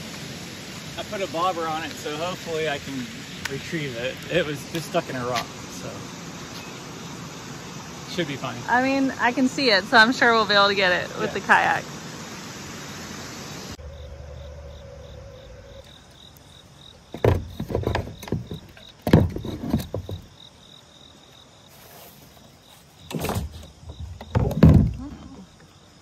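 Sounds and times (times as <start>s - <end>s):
insects chirping: 0.0s - 26.0s
gear knocking on plastic kayak: 17.1s - 20.4s.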